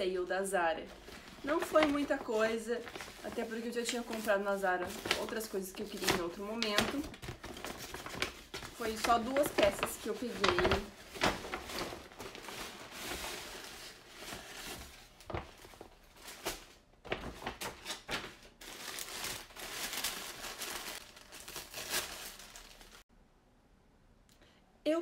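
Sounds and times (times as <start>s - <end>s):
tissue paper pulled open: 0.9s - 6.1s, 7.5s - 15.2s, 18.6s - 23.0s
paper packaging crinkling: 0.9s - 23.0s.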